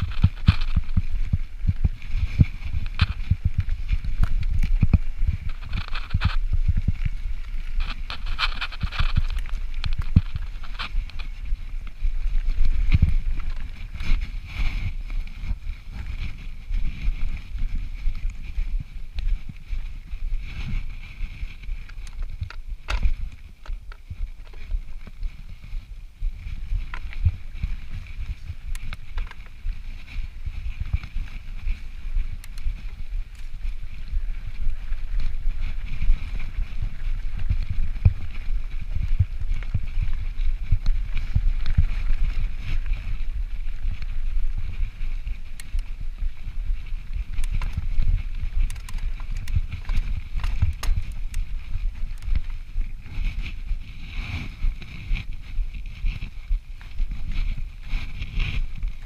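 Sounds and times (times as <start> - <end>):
bike tyres rumbling on dirt: 0.0 - 59.0
bike knocks and rattles: 21.4 - 25.7, 45.5 - 53.4.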